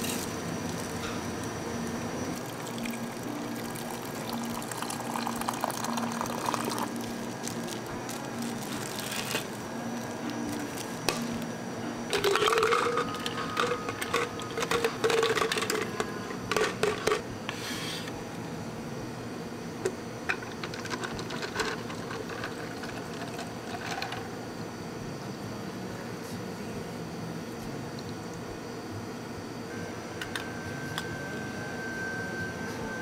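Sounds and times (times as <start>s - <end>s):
hot water pouring into pitcher: 2.3s - 9.6s.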